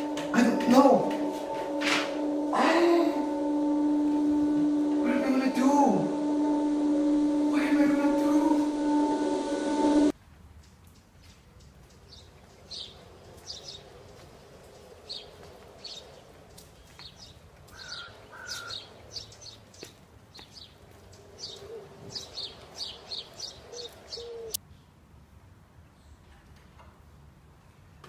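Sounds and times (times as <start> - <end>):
steady background hiss: 0.0 - 10.4
birds chirping: 11.0 - 24.6.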